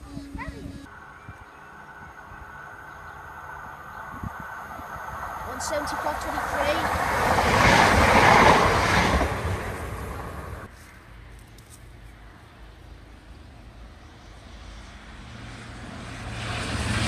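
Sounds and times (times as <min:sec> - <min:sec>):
diesel train passing: 0:00.0 - 0:11.3
diesel train engine hum: 0:00.0 - 0:17.0.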